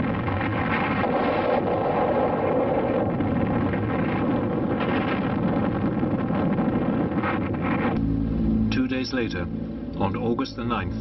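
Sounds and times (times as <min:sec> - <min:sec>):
explosion rumbling roar: 0:00.0 - 0:08.3.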